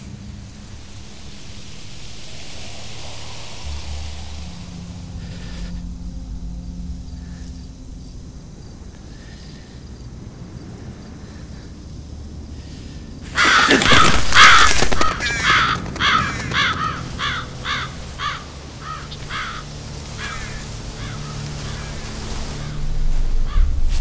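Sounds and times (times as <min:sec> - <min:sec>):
crows cawing: 0:13.3 - 0:23.7.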